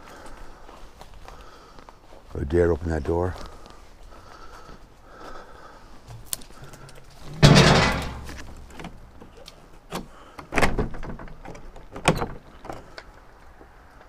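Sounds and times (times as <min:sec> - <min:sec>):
wooden door scraping and banging: 0:07.3 - 0:09.4, 0:10.0 - 0:13.0.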